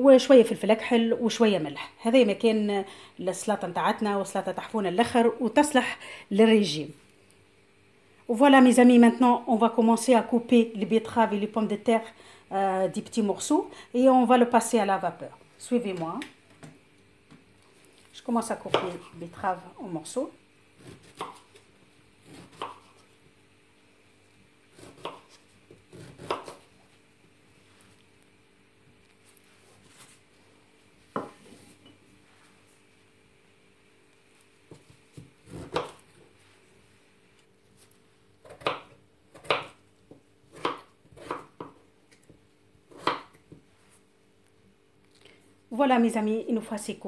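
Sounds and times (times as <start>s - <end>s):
knife cutting potato: 18.5s - 19.3s, 20.8s - 21.6s, 22.2s - 23.1s, 24.7s - 26.7s, 34.7s - 36.3s, 38.4s - 43.6s
knife cutting on wooden board: 22.2s - 23.1s, 24.7s - 26.6s, 34.7s - 36.0s.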